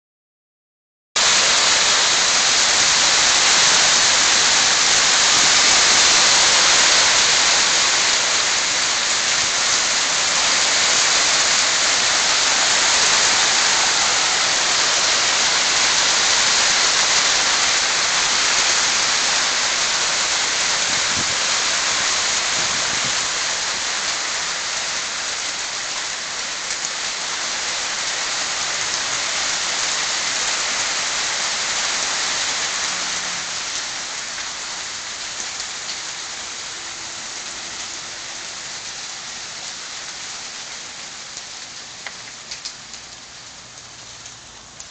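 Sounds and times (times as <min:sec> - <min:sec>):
hail falling on car and pavement: 0:01.2 - 0:44.9.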